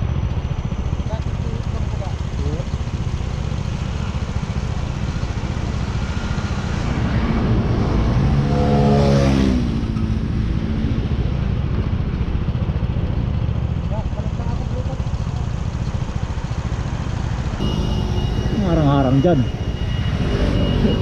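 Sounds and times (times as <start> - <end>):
vehicle passing by: 6.0 - 9.9, 16.9 - 21.0
motorcycle engine rumble: 9.8 - 21.0.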